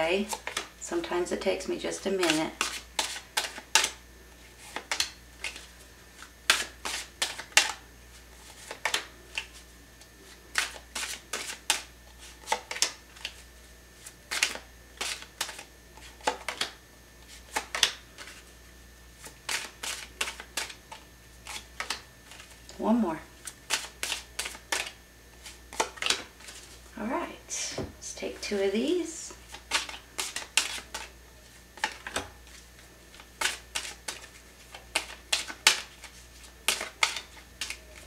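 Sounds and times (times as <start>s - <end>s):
cards clicking and sliding: 0.3s - 0.7s, 2.2s - 4.0s, 4.6s - 7.8s, 8.4s - 9.6s, 10.3s - 13.4s, 14.0s - 18.4s, 19.2s - 22.6s, 23.6s - 26.7s, 29.4s - 31.2s, 31.8s - 38.0s.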